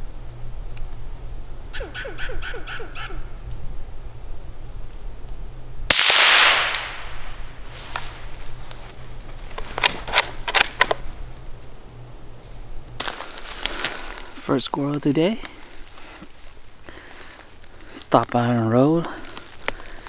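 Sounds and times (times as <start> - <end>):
rifle shot with echo: 5.9 - 7.2.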